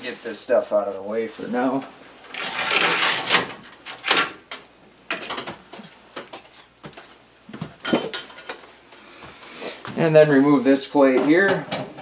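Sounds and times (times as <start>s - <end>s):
objects knocking and clattering: 2.3s - 8.7s, 11.1s - 12.0s.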